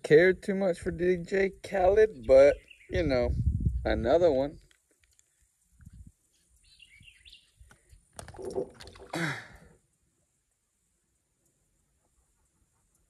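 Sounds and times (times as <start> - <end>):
faint bird chirps: 5.3 - 7.9.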